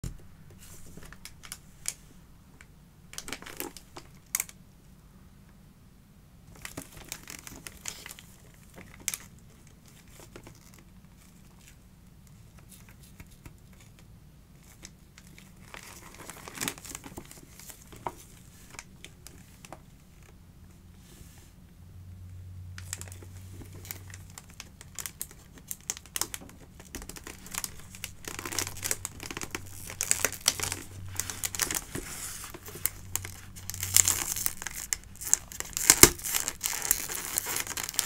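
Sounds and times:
faint low hum: 0:00.0 - 0:38.0
wrapping paper crinkling and tearing: 0:03.2 - 0:04.6, 0:06.6 - 0:11.8, 0:14.6 - 0:20.3, 0:22.8 - 0:38.0.

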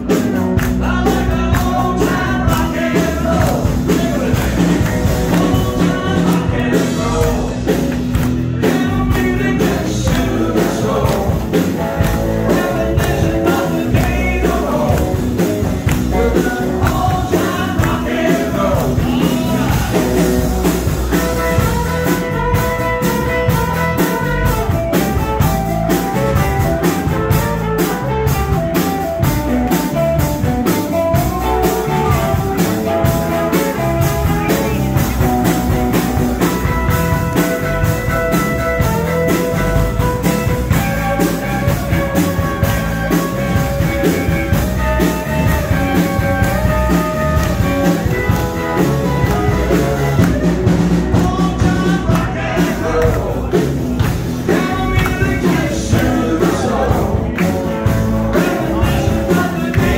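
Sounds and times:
electric guitars: 0:00.0 - 0:59.9
steady drum beat: 0:00.0 - 0:59.9.

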